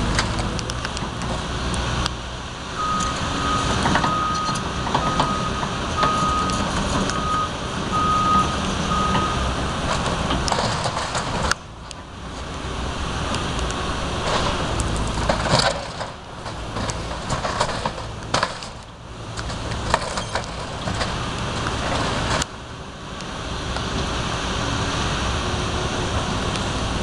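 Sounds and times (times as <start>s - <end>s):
diesel engine running: 0.0s - 27.0s
wood cracking and crunching: 13.3s - 22.6s.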